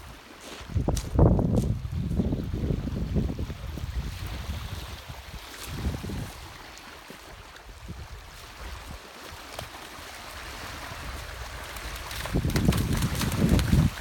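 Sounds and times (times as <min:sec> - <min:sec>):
wind buffeting microphone: 0:00.5 - 0:06.6, 0:10.6 - 0:14.0
small waves on pebbly shore: 0:03.6 - 0:14.0.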